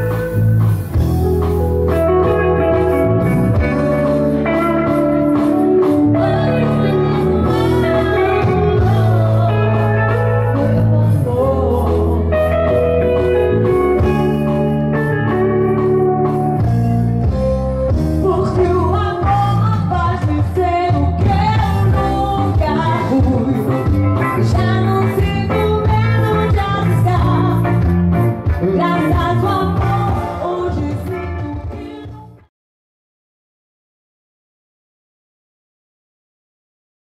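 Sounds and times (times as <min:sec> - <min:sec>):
electric bass: 0:00.0 - 0:32.5
keyboard: 0:00.0 - 0:32.5
live band through pa: 0:00.0 - 0:32.5
woman singing: 0:05.8 - 0:13.6, 0:18.2 - 0:27.9, 0:28.6 - 0:32.5.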